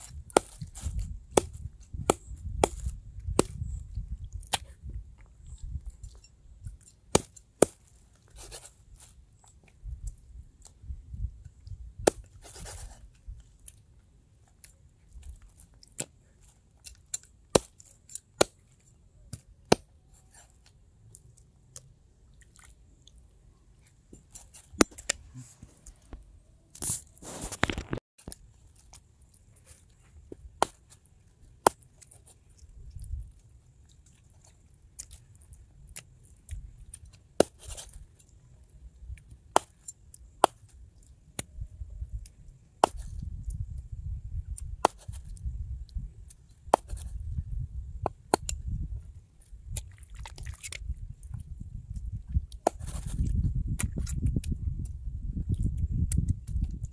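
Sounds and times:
knife cutting and chopping: 0.0 - 3.7, 6.7 - 9.1, 12.0 - 13.0, 16.8 - 20.7, 24.2 - 25.9, 37.0 - 38.0, 42.8 - 43.3, 44.8 - 45.4, 46.6 - 47.2, 52.6 - 54.2
scraping rustle: 26.8 - 31.0.

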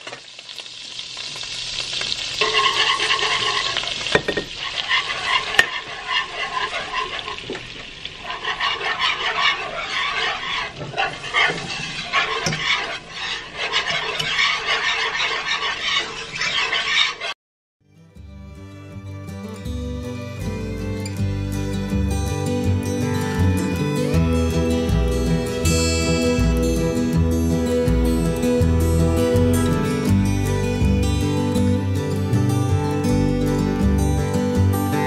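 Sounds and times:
butter and flour sizzling: 0.0 - 16.9
whisk ticking against pan: 4.6 - 17.1.

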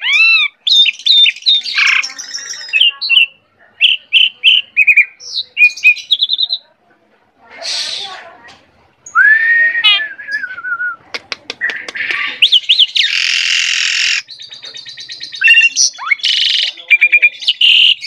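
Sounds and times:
harsh bird rasp: 7.5 - 8.2, 11.7 - 14.5.

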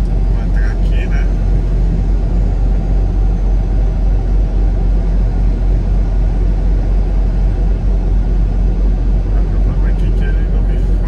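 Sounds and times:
diesel truck engine rumble: 0.0 - 11.0
road noise: 0.0 - 11.0.

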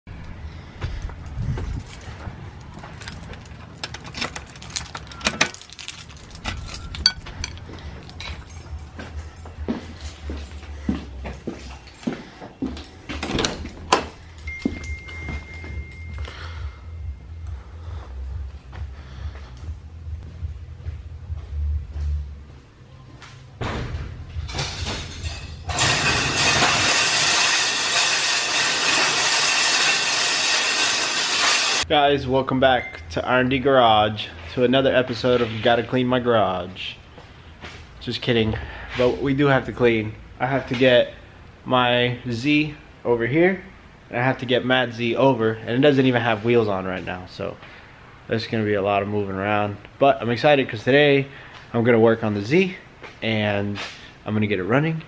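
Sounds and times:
keys jangling: 1.2 - 16.3
garage door clanking: 23.6 - 31.8.

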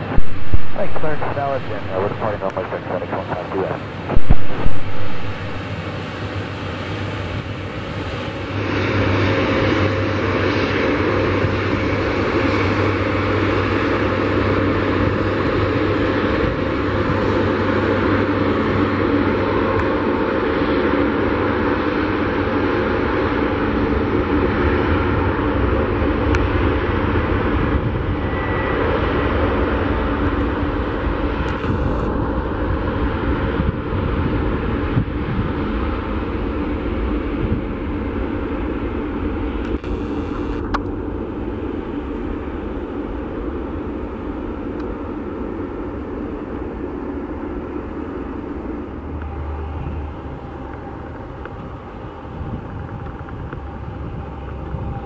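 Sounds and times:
jet engines at takeoff: 0.0 - 55.0.

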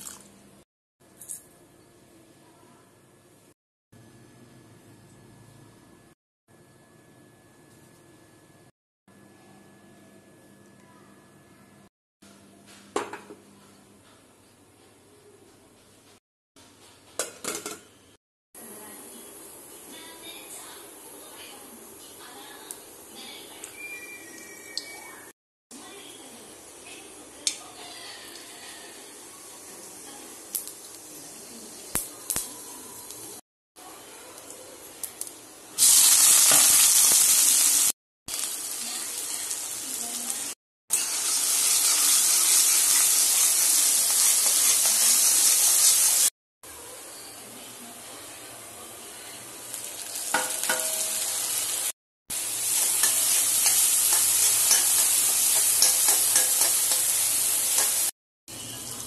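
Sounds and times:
oil sizzling in a pan: 26.0 - 33.4, 35.0 - 46.3, 49.3 - 59.0
spoon stirring and scraping pan: 52.6 - 58.1.

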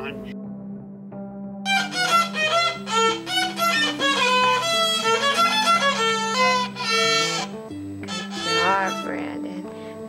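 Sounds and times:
violin melody: 1.7 - 9.6.

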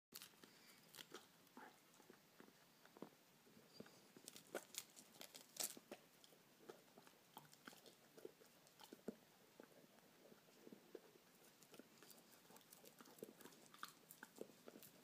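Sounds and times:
rabbit chewing leaf: 4.2 - 6.3, 10.9 - 15.0.

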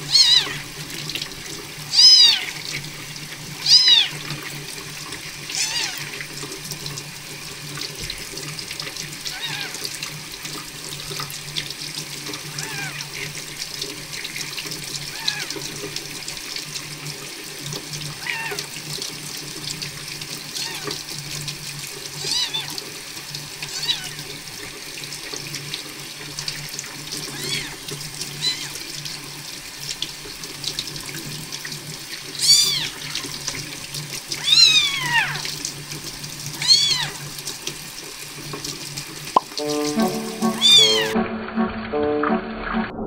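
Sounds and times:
tap water running into sink: 0.0 - 41.2
kitten mewing: 0.1 - 0.6, 1.9 - 2.5, 3.6 - 4.2, 32.4 - 33.0, 36.6 - 37.2.

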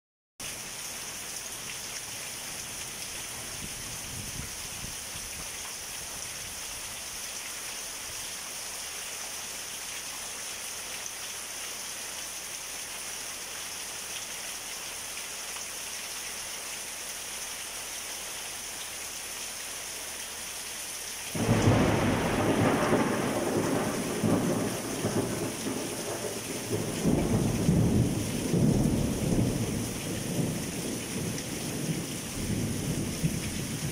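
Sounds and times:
heavy rain hissing: 0.5 - 33.9
thunder crack and rumble: 21.4 - 33.9.

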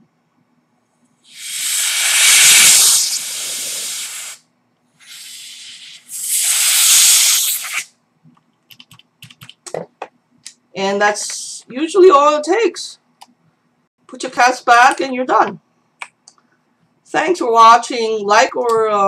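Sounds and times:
compressed air hissing: 1.3 - 4.4, 5.0 - 7.9.

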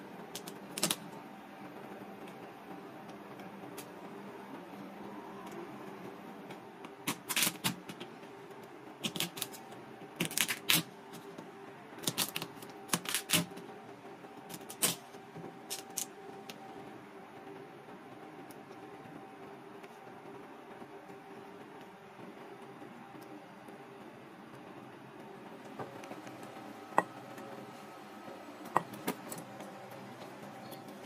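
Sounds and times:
faint steady hum: 0.0 - 31.0
knife cracking crab shells: 0.4 - 1.0, 9.0 - 9.6, 10.2 - 10.9.

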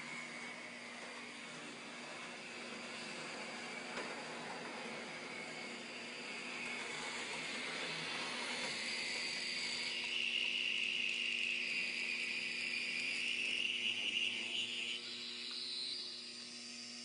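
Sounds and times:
model train motor whine: 0.0 - 17.0.

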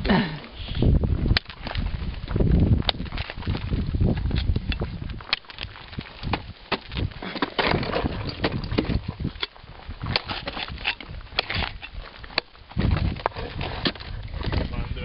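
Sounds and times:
ice axes chipping into ice: 4.4 - 12.9.

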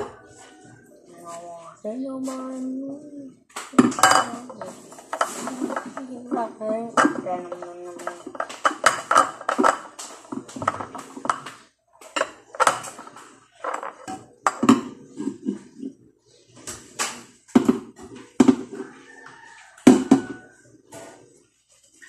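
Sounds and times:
dishware clinking: 3.8 - 11.5.

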